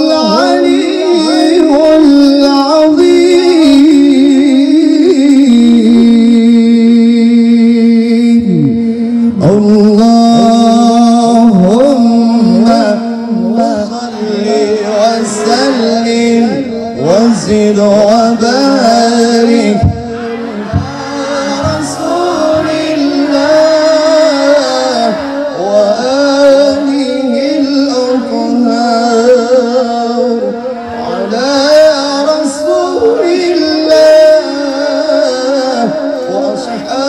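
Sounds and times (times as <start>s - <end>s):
men chanting through a pa system: 8.4s - 37.0s.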